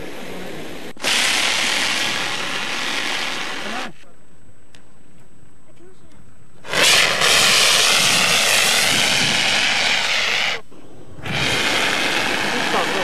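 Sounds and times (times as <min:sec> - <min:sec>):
fire extinguisher hissing: 0:00.0 - 0:04.0, 0:06.6 - 0:13.0.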